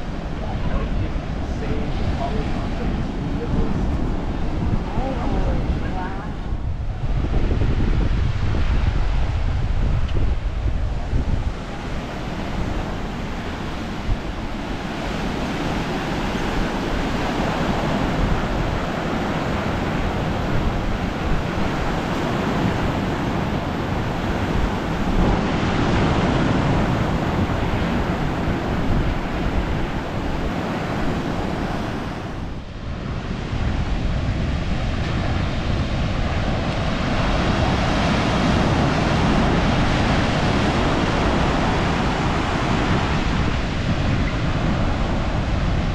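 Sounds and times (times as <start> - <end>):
ocean surf washing in: 0.0 - 45.9
wind on microphone: 0.0 - 45.9.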